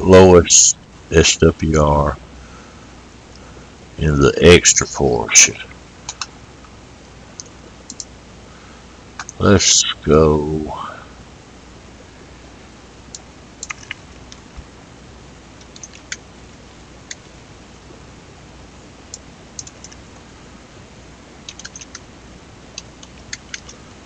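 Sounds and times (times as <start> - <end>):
keyboard keystrokes: 13.6 - 14.4, 21.5 - 22.0
mouse clicks: 22.8 - 23.8.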